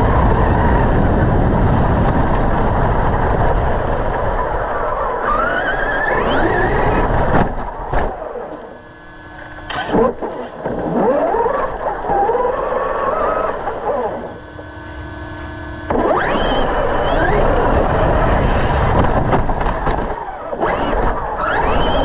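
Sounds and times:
electric motors whining: 0.0 - 22.0
steady rush of noise: 0.0 - 22.0.

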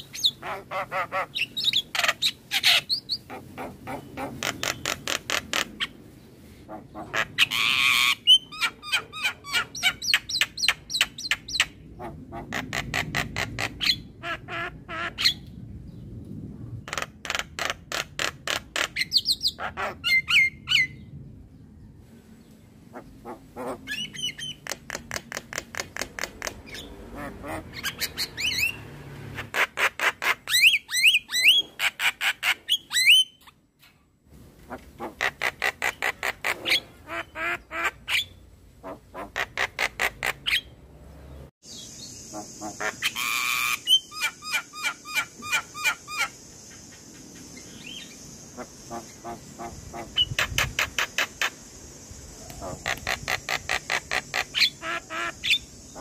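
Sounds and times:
bird harsh chattering calls: 0.0 - 6.0, 22.9 - 33.4, 34.7 - 40.7, 41.6 - 56.0
steady high hiss: 41.6 - 56.0.

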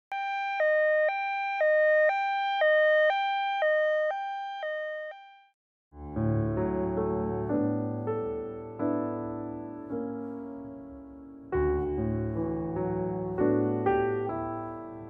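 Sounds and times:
two-tone hi-lo siren: 0.1 - 5.6
soft piano music: 6.0 - 15.0.

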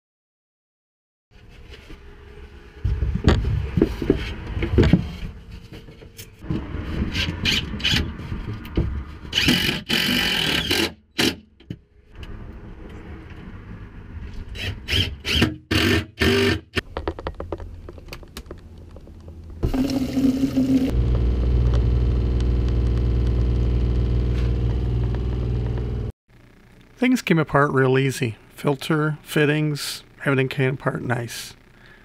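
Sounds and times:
cordless drill driving screws: 9.3 - 11.3, 14.6 - 16.6.

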